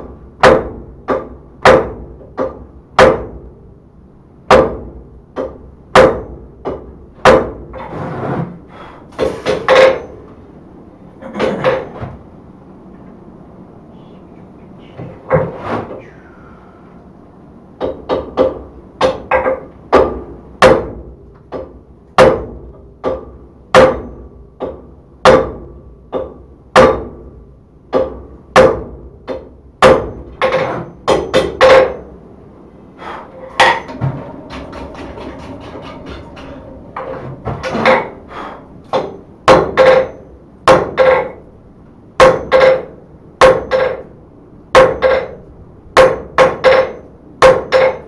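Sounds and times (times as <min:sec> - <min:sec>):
hammer striking steel on anvil: 0:22.2 - 0:27.1, 0:33.2 - 0:41.4, 0:42.2 - 0:44.1, 0:44.7 - 0:45.4, 0:46.0 - 0:48.0.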